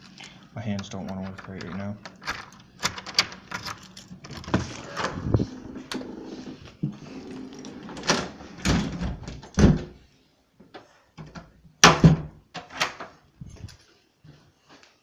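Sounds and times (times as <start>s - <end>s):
door clicks and knocks: 1.2s - 5.2s, 8.0s - 9.9s, 11.2s - 13.1s.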